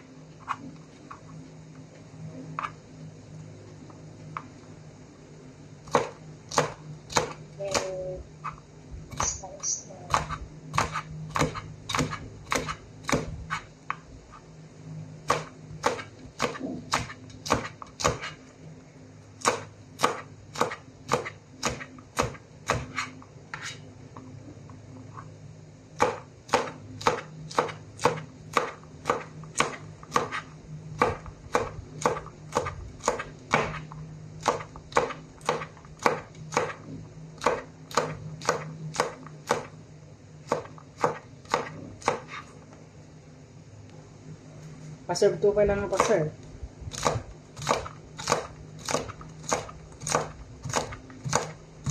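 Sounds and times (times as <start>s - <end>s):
knife chopping on plastic board: 5.9s - 7.9s, 10.1s - 13.6s, 15.3s - 18.4s, 19.4s - 23.7s, 26.0s - 30.4s, 31.0s - 33.8s, 34.4s - 36.8s, 37.4s - 39.7s, 40.4s - 42.4s, 45.9s - 46.2s, 46.9s - 51.9s.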